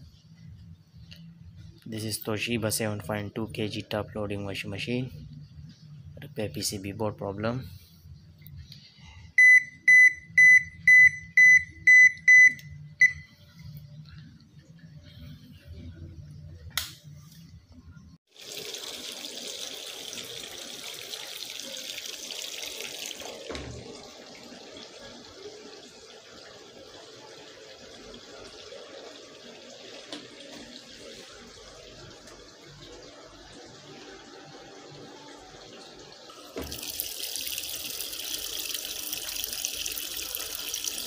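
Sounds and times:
washing machine buzzer beeps: 9.4s - 13.4s
water rushing into tub: 36.4s - 41.0s.

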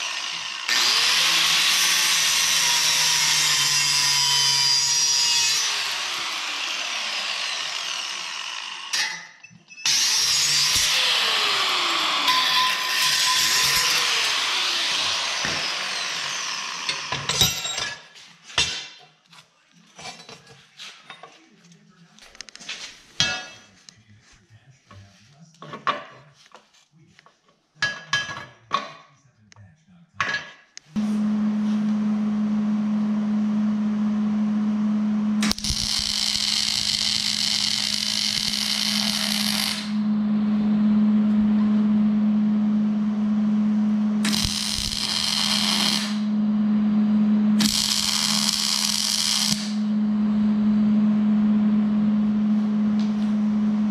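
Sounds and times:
welder humming: 0.0s - 9.1s, 9.9s - 17.3s, 31.0s - 53.9s
angle grinder cutting steel: 0.0s - 17.6s, 35.4s - 40.0s, 44.2s - 46.3s, 47.6s - 49.9s
crackling hiss of welding: 35.4s - 40.0s, 44.2s - 46.2s, 47.6s - 49.8s.

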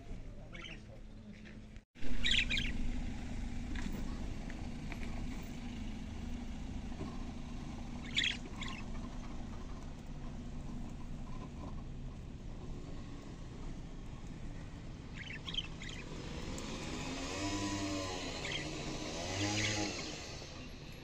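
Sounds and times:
steady low hum: 0.0s - 21.0s
budgerigars chirping: 0.4s - 0.9s, 2.1s - 2.9s, 7.6s - 10.0s, 14.6s - 20.6s.

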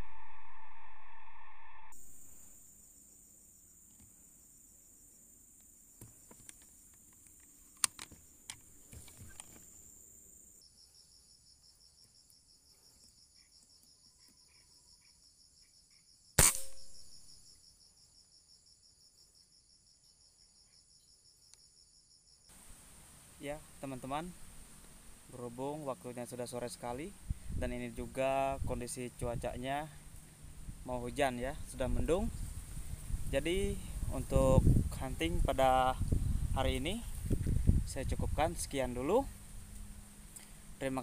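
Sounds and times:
insect chirring: 0.0s - 41.0s
air rifle shot: 16.4s - 17.0s.

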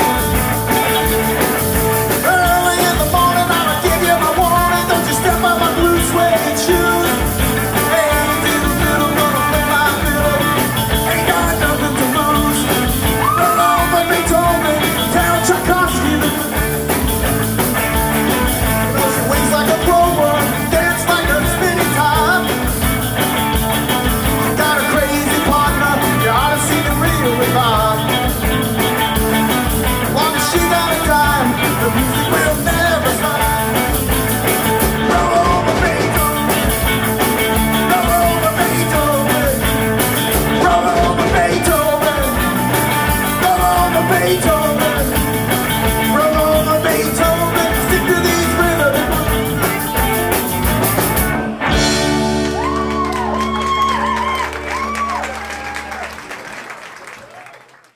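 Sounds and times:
live rock band playing: 0.0s - 56.2s.

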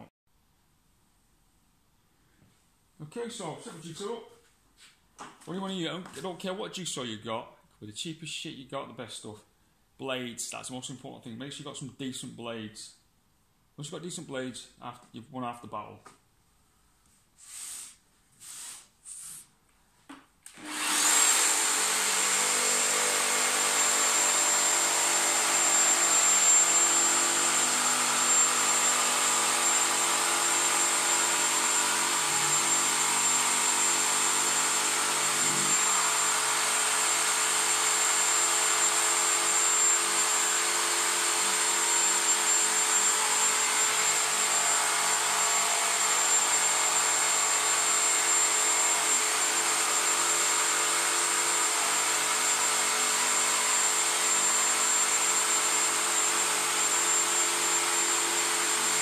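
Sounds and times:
jigsaw cutting board: 20.1s - 59.0s.

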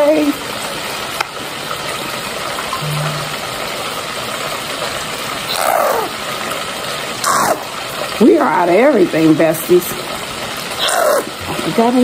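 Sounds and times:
low hum: 2.7s - 4.0s.

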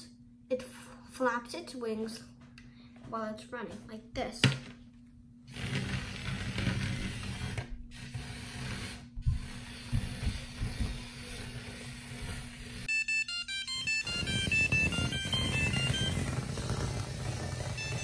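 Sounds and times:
toy robot motors whirring and clicking: 5.5s - 12.9s, 14.1s - 18.0s.

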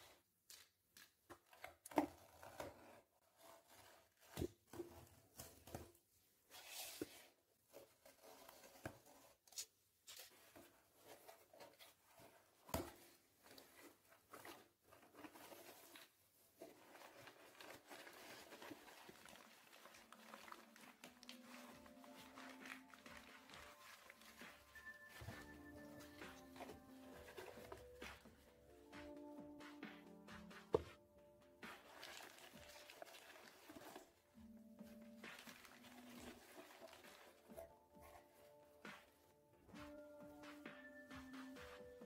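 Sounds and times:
packing paper crinkling: 15.0s - 28.4s, 31.7s - 37.6s
box knocking: 25.0s - 31.0s.

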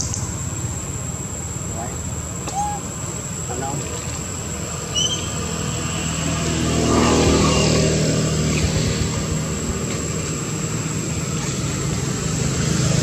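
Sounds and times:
vehicle engine passing: 3.1s - 13.0s.

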